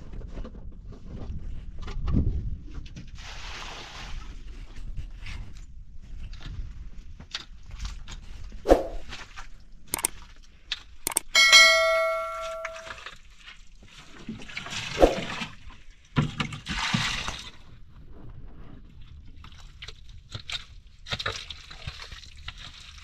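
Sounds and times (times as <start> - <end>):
click: 11.1 - 11.3
bell-like ding: 11.1 - 13.0.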